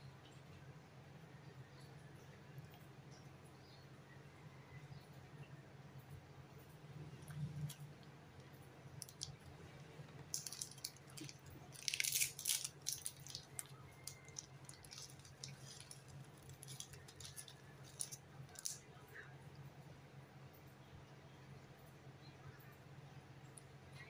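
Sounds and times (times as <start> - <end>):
plastic snack wrapper crinkling: 8.4 - 18.9.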